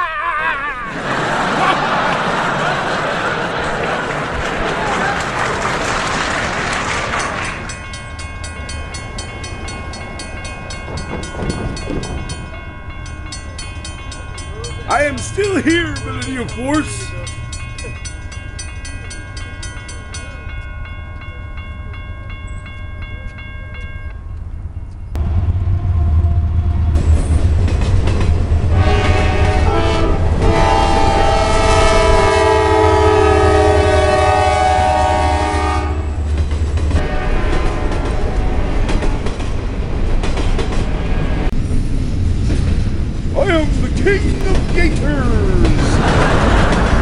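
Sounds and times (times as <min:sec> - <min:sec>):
diesel locomotive rumble: 0:01.0 - 0:47.0
train wheels clattering: 0:05.4 - 0:20.4, 0:26.8 - 0:31.3, 0:36.1 - 0:47.0
railroad crossing bell: 0:07.2 - 0:25.2, 0:30.6 - 0:36.3
locomotive horn: 0:28.6 - 0:36.3, 0:37.0 - 0:39.0.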